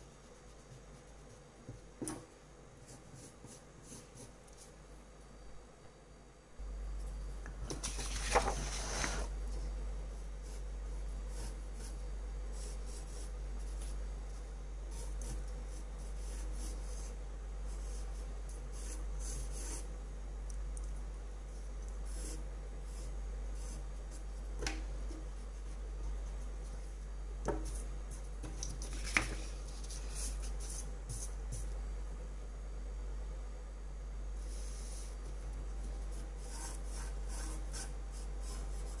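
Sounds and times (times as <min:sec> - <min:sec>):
pencil scratching on paper: 0:10.4 - 0:12.0, 0:14.9 - 0:19.9, 0:21.6 - 0:24.3, 0:36.0 - 0:39.0.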